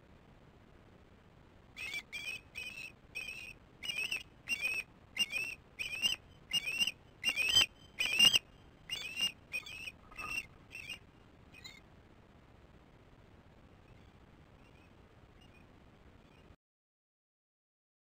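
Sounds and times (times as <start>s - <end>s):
osprey high whistled chirps: 1.8s - 11.0s, 11.6s - 11.8s, 13.9s - 16.5s.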